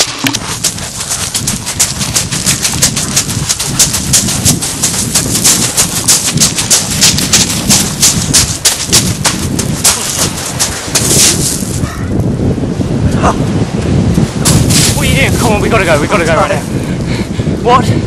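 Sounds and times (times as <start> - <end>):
running footsteps on pebbles: 0.0 - 11.9, 14.4 - 16.5.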